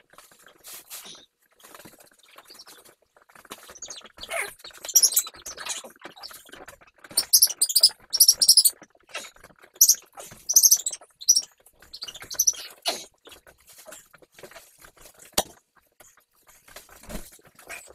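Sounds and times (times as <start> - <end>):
puppies squeaking and yelping: 3.7 - 6.3, 7.0 - 13.1.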